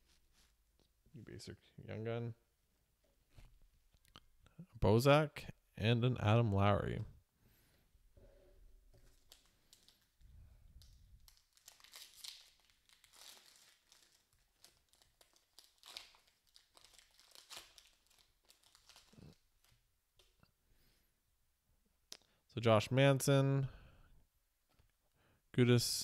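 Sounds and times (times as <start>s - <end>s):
foil wrapper crinkling and tearing: 9.0s - 10.2s, 10.8s - 19.8s.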